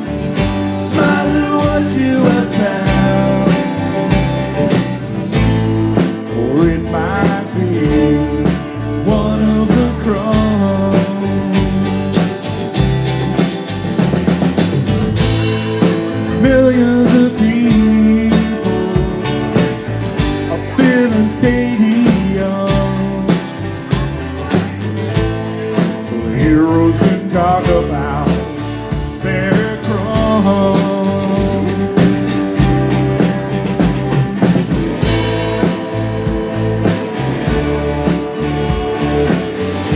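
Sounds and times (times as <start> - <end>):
amplified acoustic guitar: 0.0 - 39.9
drum kit: 0.0 - 39.9
bending melody line: 25.2 - 39.9.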